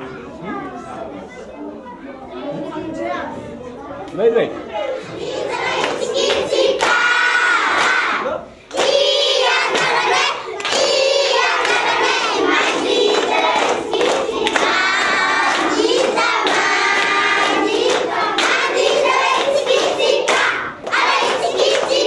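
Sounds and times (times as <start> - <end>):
children singing together: 5.0 - 22.0
hand claps: 5.8 - 8.1, 8.7 - 22.0.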